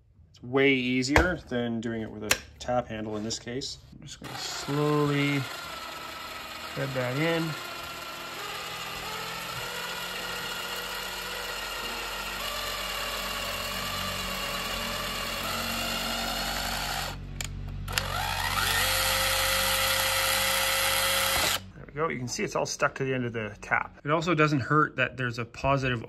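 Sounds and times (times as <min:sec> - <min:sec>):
cordless drill motor whining: 0:04.2 - 0:21.7.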